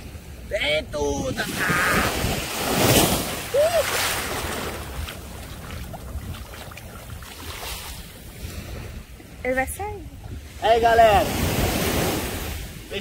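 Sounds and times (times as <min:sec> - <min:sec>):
surf washing over sand: 0:00.0 - 0:13.0.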